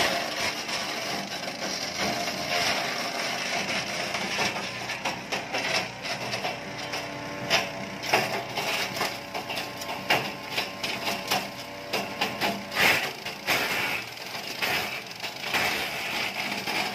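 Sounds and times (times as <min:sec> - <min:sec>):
blades chipping wood: 0:04.0 - 0:16.9.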